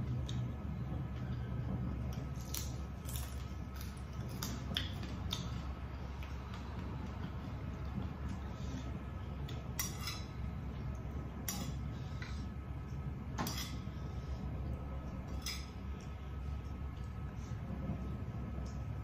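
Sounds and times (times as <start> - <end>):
low background hum: 0.0 - 19.0
metal spoon scraping a plate: 9.8 - 10.3.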